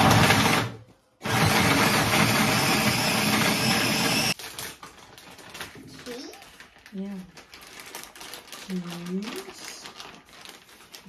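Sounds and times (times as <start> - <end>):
electric food chopper chopping: 0.0 - 4.4.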